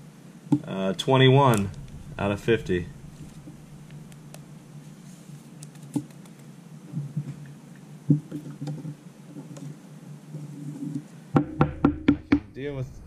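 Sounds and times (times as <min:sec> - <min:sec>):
steady low hum: 0:00.0 - 0:08.1, 0:11.5 - 0:13.0
trading cards flipped by hand: 0:05.5 - 0:06.5.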